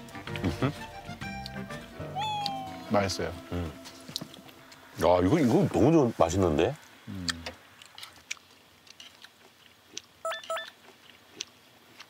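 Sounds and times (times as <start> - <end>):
chewing: 7.2 - 12.0.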